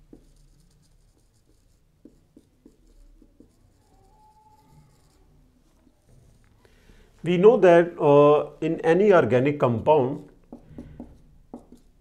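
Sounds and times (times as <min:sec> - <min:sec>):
marker strokes on whiteboard: 0:00.0 - 0:06.6, 0:09.6 - 0:12.0.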